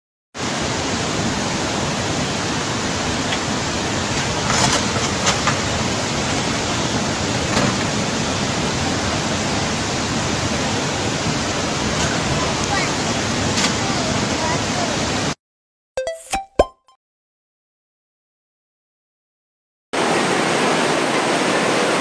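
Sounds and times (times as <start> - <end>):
floodwater rushing: 0.4 - 15.4, 20.0 - 22.0
heavy rain: 0.4 - 15.4, 20.0 - 22.0.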